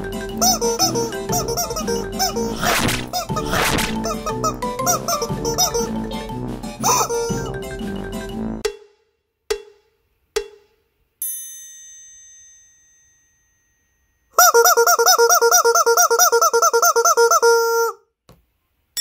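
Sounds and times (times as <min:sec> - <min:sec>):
rubber chicken squawking: 0:00.4 - 0:06.1, 0:06.8 - 0:07.5, 0:14.4 - 0:18.0.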